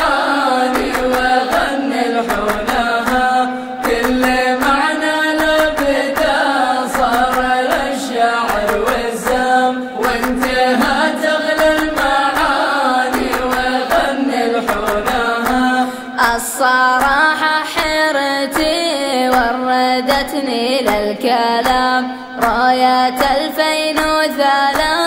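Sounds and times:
male chorus chanting: 0.0 - 16.5
rhythmic hand clapping: 0.0 - 25.0.

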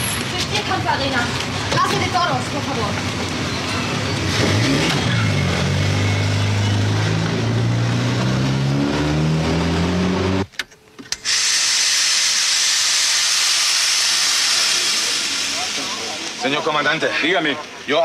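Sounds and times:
compressed air hissing: 11.3 - 16.6.

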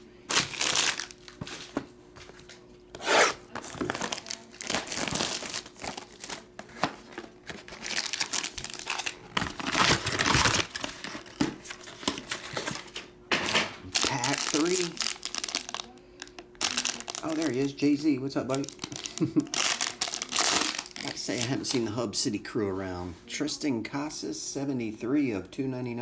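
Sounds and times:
plastic wrap tearing and crinkling: 0.3 - 1.7, 3.0 - 12.9, 13.9 - 21.8
cardboard and foil handled: 0.3 - 2.6, 3.4 - 21.8.

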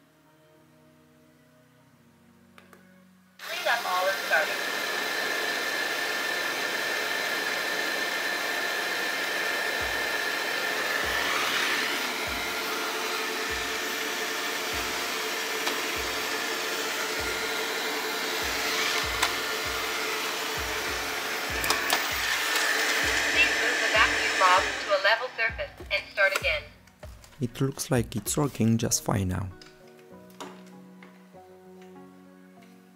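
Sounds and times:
robot vacuum whirring: 3.4 - 25.6.

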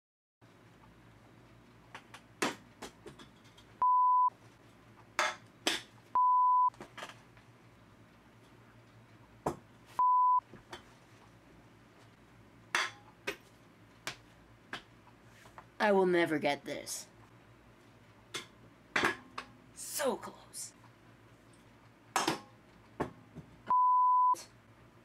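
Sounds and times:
censor bleeps: 3.8 - 4.3, 6.2 - 6.7, 10.0 - 10.4, 23.7 - 24.4.

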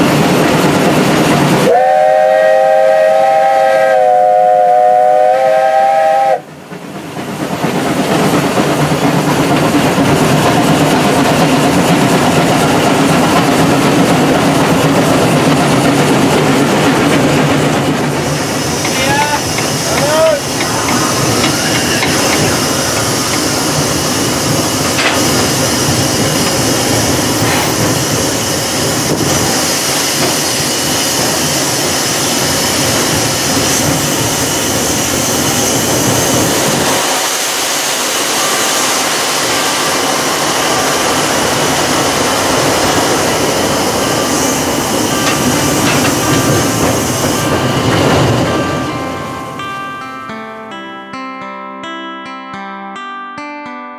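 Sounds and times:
steam locomotive working: 0.0 - 50.0
wheels on rails: 6.6 - 49.5.

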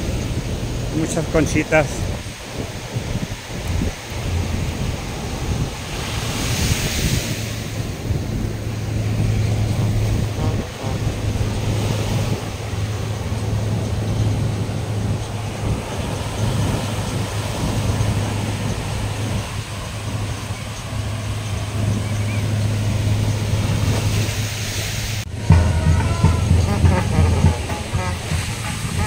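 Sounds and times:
low engine hum: 0.0 - 29.0
surf breaking on a beach: 0.0 - 29.0
wind buffeting microphone: 0.0 - 29.0.

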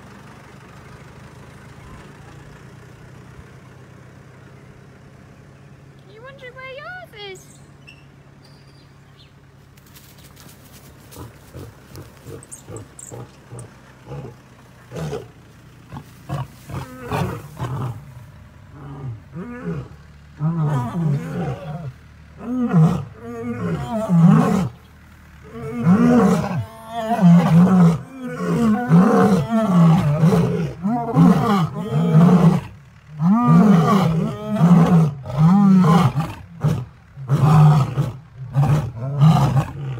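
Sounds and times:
lions roaring: 11.1 - 15.3, 15.9 - 24.8, 25.4 - 39.9.

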